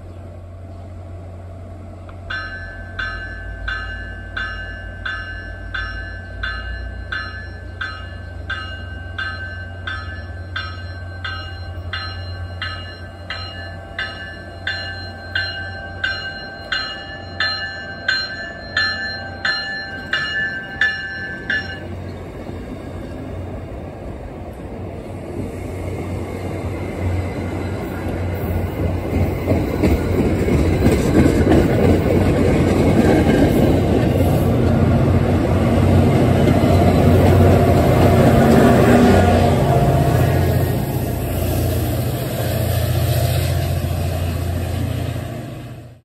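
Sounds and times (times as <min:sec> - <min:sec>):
diesel locomotive: 0:00.0 - 0:46.0
train wheels rumbling on rails: 0:00.0 - 0:46.0
train bell ringing: 0:02.2 - 0:23.2.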